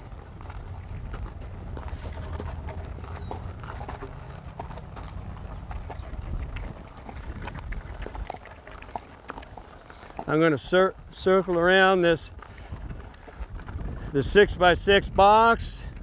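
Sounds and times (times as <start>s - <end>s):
horse hooves clopping on dirt: 0.0s - 16.0s.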